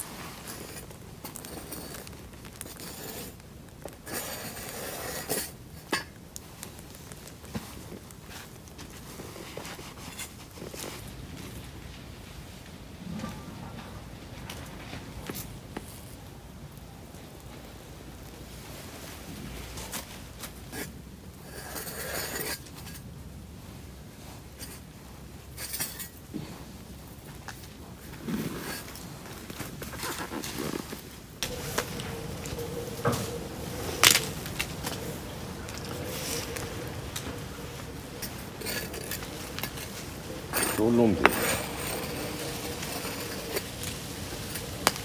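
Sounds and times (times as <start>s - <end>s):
seeds scattering rustle: 0.0s - 13.2s, 23.7s - 45.0s.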